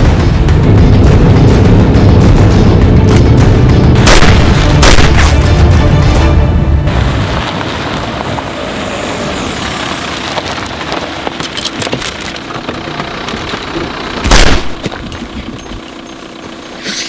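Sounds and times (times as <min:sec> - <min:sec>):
heavy low rumble: 0:00.0 - 0:09.0
loud bang: 0:04.0 - 0:05.5
tyres crunching over gravel: 0:06.9 - 0:16.8.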